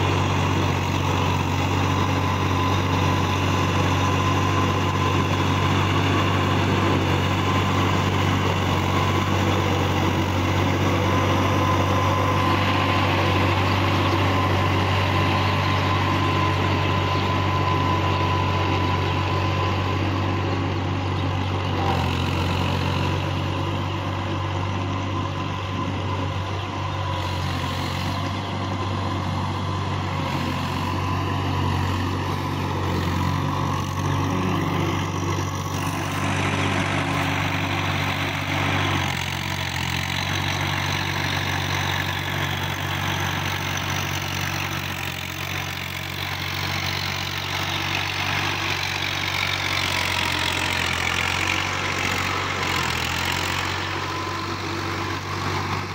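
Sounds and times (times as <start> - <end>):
tiller churning and splashing mud: 0.0 - 55.9
tractor diesel engine running: 0.0 - 55.9.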